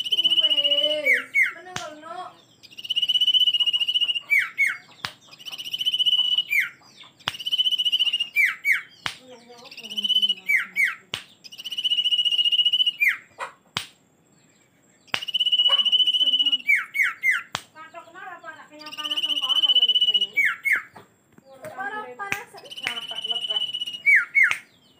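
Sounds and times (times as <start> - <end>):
bird trilled whistle song: 0.0 - 13.4, 14.3 - 17.6, 18.8 - 21.0, 22.6 - 24.9
sharp clicks: 7.2 - 8.1, 15.1 - 15.4.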